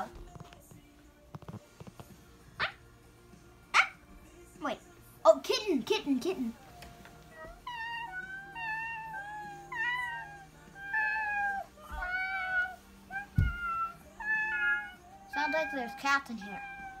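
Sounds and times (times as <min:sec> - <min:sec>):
children mewing like a kitten: 0:07.4 - 0:17.0.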